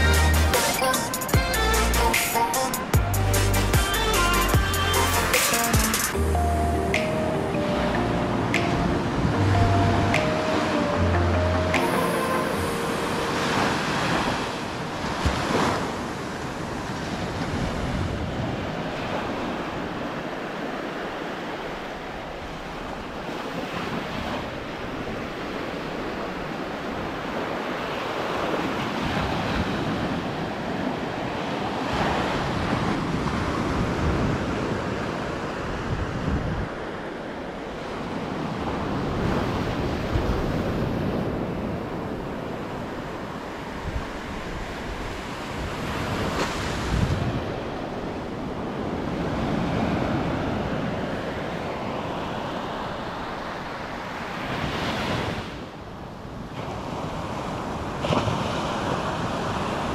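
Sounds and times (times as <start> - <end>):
wind buffeting microphone: 28.2 - 52.1.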